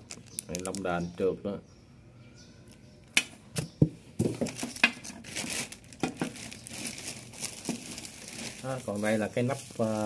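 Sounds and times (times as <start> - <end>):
plastic bags crinkling: 0.0 - 1.0, 4.4 - 10.0.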